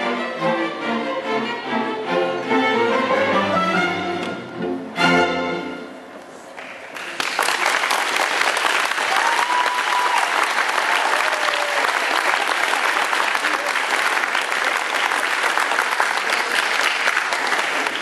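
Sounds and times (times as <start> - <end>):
orchestra strings playing: 0.0 - 6.4
audience applause: 6.6 - 18.0.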